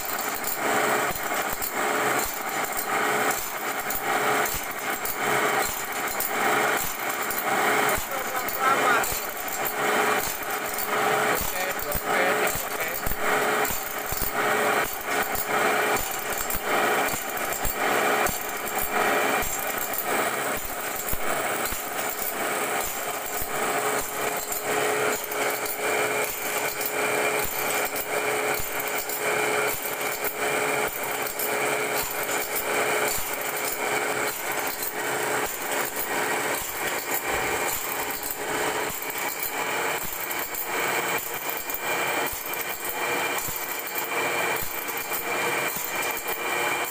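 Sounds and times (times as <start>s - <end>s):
grinding machine rhythmic clatter: 0.0s - 46.9s
machine motor humming: 1.8s - 46.9s.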